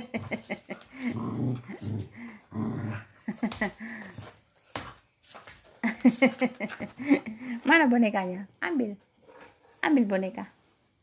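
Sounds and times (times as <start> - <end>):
dog growling: 0.9 - 3.3.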